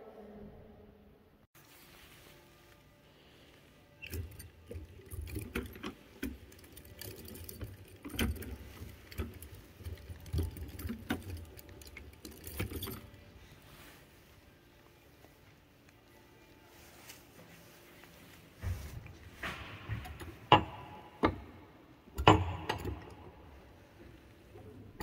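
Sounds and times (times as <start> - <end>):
metal chain clinking over sprockets: 4.0 - 13.7.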